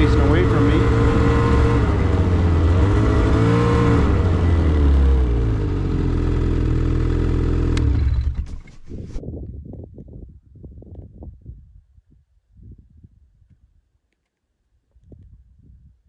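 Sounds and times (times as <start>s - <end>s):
snowmobile engine running: 0.0s - 9.2s
low uneven rumbling: 6.7s - 9.2s.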